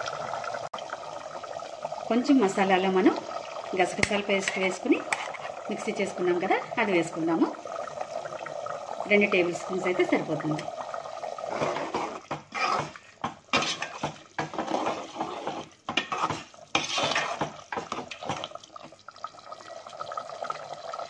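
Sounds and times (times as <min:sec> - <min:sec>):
metal ladle scraping pot: 0:04.0 - 0:05.8, 0:11.4 - 0:18.6
liquid sloshing: 0:11.3 - 0:19.9.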